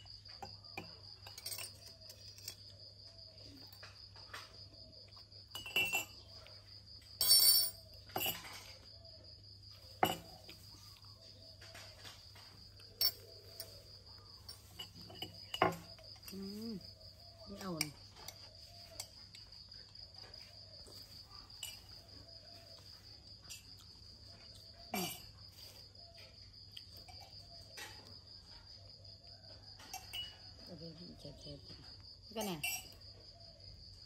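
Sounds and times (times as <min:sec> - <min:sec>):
crickets chirring: 0:00.0 - 0:34.0
knocks and clinks on tabletop: 0:05.5 - 0:06.4, 0:07.2 - 0:08.8, 0:10.0 - 0:10.6, 0:14.5 - 0:16.4, 0:29.8 - 0:30.5, 0:32.4 - 0:33.0.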